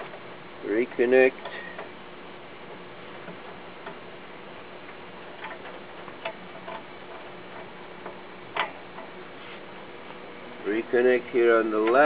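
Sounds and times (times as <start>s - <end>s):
connector clicks and rattles: 4.8s - 9.2s, 11.8s - 12.0s.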